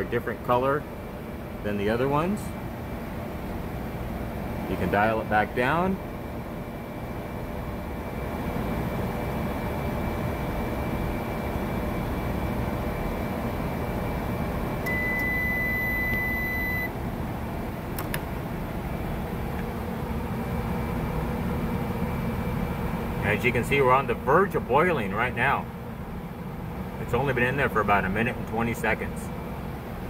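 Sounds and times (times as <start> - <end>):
microwave oven humming: 0.0 - 30.0
long beep: 14.9 - 16.9
sharp click: 18.0 - 18.3.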